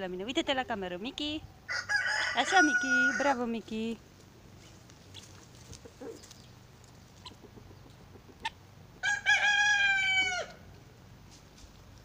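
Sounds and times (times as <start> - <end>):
rooster crowing: 1.7 - 3.4, 9.0 - 10.6
faint rustles and clicks: 4.1 - 8.0.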